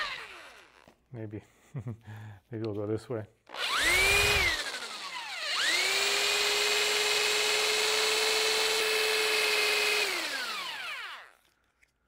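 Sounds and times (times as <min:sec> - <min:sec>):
electric drill motor whine: 0:00.0 - 0:01.0, 0:03.5 - 0:11.5.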